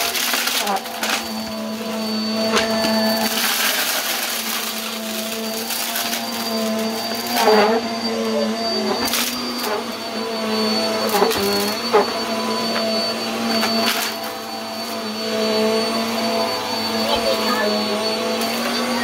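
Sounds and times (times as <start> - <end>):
vacuum cleaner whining: 0.0 - 19.0
debris crackling in vacuum: 2.5 - 6.2.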